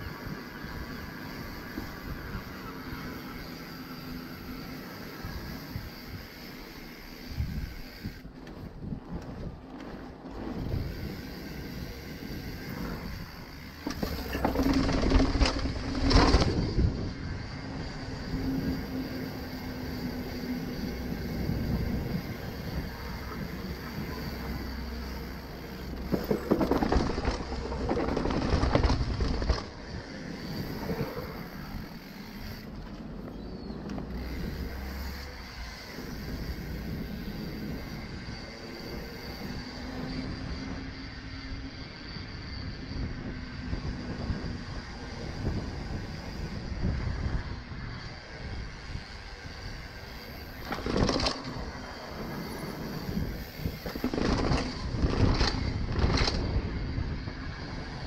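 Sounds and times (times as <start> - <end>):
bike tyres rolling on paving: 0.0 - 58.0
bike clattering down concrete steps: 13.5 - 16.8, 25.8 - 29.8.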